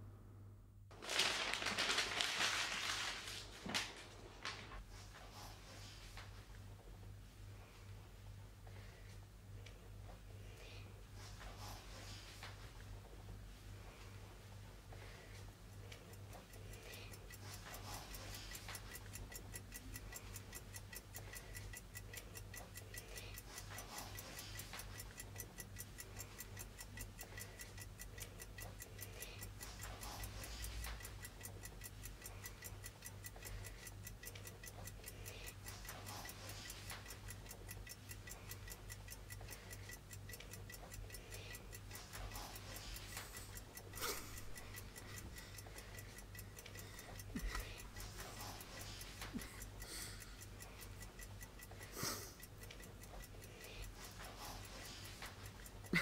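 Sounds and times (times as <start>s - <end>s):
clock ticking: 13.7s - 56.0s.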